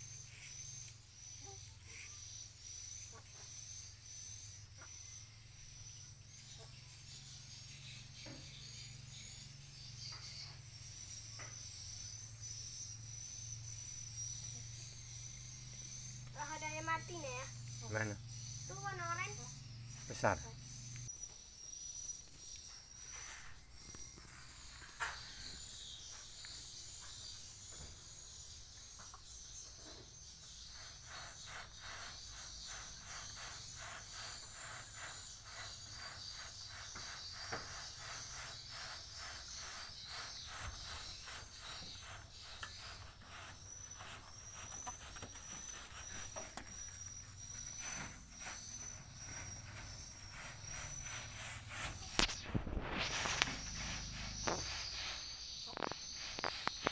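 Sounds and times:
insects chirping: 0:00.0 - 0:56.9.

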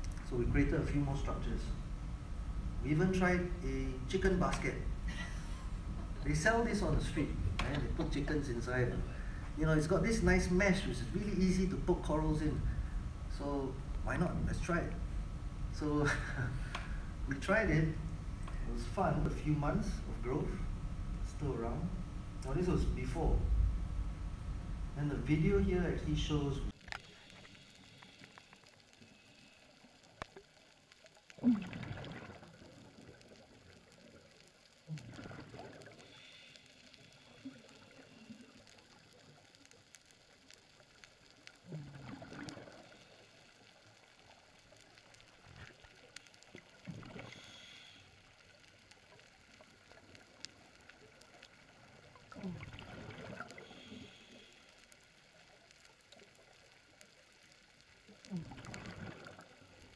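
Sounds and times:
faint steady hiss: 0:00.0 - 0:59.9
diver exhaling bubble bursts: 0:31.4 - 0:32.6, 0:34.9 - 0:36.0, 0:52.3 - 0:54.1, 0:58.3 - 0:59.6.

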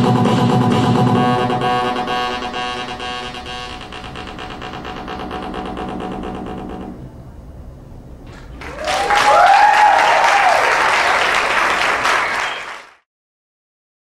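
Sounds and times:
audience applauding: 0:08.3 - 0:13.1
audience cheering: 0:08.4 - 0:13.0.

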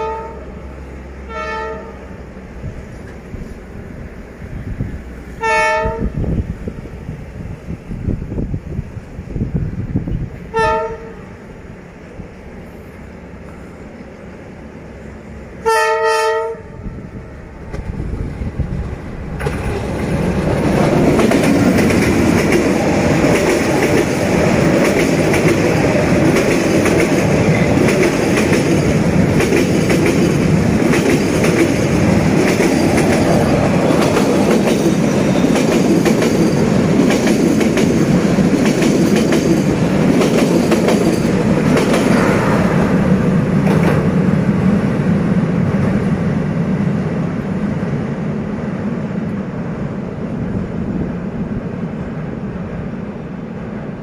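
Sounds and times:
locomotive horn blast: 0:00.0 - 0:00.6, 0:01.2 - 0:02.2, 0:05.4 - 0:06.2, 0:10.5 - 0:11.3, 0:15.6 - 0:17.0
train rumbling past: 0:00.0 - 0:54.0
wheels clacking over rail joints: 0:18.8 - 0:44.8.

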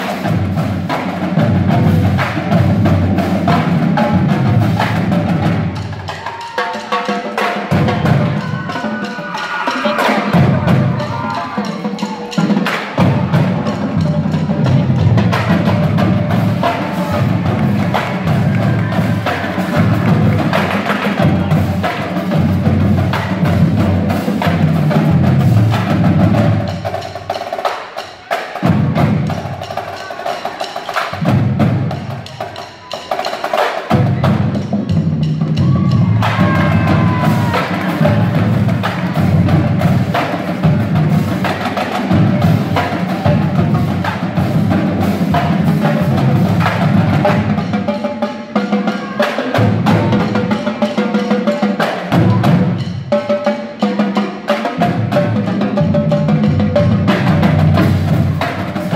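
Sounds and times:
drumline playing percussion: 0:00.0 - 0:58.9.

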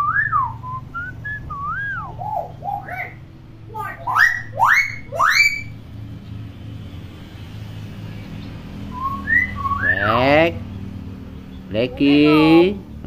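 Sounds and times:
myna bird whistling: 0:00.0 - 0:05.8, 0:08.0 - 0:10.8.

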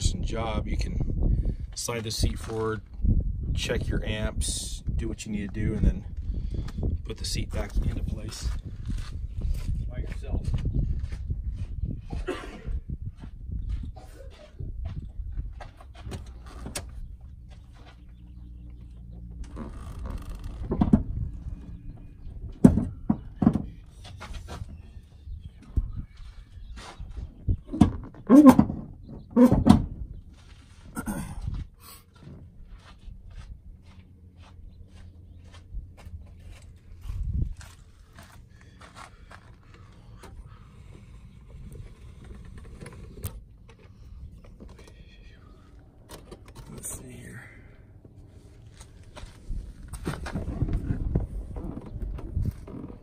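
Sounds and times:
wind buffeting microphone: 0:00.0 - 0:17.5, 0:20.0 - 0:30.3, 0:34.6 - 0:44.7, 0:49.0 - 0:53.0
rustling and shifting: 0:05.3 - 0:53.0.

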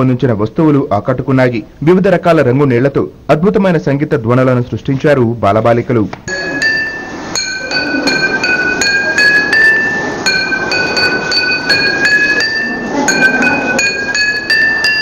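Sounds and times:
glass cups struck playing a tune: 0:06.2 - 0:15.0.

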